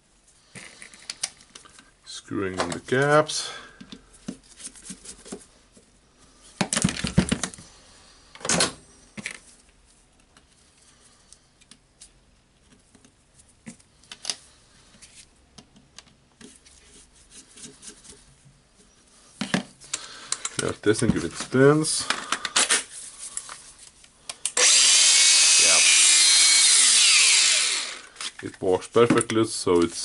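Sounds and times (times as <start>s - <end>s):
plastic parts clicking and knocking: 6.6s - 7.6s.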